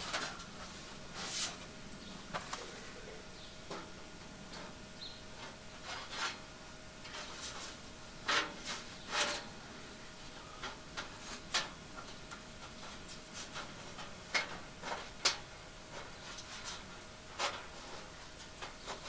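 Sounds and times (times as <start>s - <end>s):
sheet metal panels clicking and scraping: 0.0s - 1.6s, 5.4s - 6.4s, 7.0s - 9.6s, 10.4s - 19.0s.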